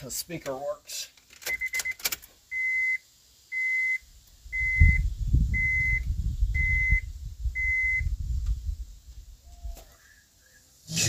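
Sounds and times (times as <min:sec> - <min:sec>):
vehicle warning chime beeping: 0:01.5 - 0:04.0, 0:04.6 - 0:05.0, 0:05.6 - 0:07.0, 0:07.6 - 0:08.0.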